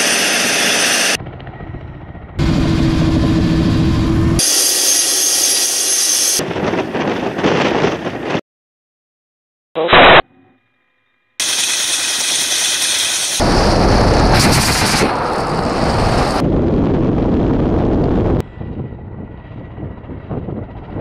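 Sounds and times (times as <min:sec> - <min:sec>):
distant helicopter flying: 0:00.0 - 0:08.4, 0:11.4 - 0:21.0
helicopter rotor and turbine: 0:00.0 - 0:08.4, 0:11.4 - 0:21.0
dense low rumbling noise: 0:13.4 - 0:21.0.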